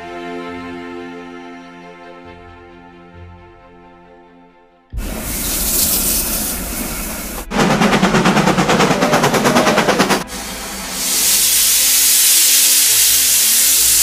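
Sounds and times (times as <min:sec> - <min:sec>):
soft string music: 0:00.0 - 0:08.8, 0:10.1 - 0:14.0
rush of steam: 0:05.0 - 0:14.0
steam locomotive chuffing: 0:05.0 - 0:14.0.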